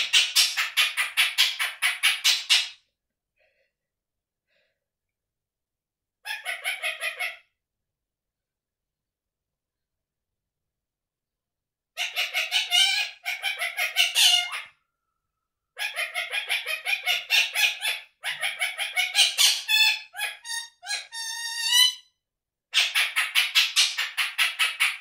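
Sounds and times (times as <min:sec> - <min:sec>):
parakeet calling harshly: 0:06.3 - 0:07.4, 0:12.0 - 0:14.8, 0:15.8 - 0:22.1, 0:22.7 - 0:25.0.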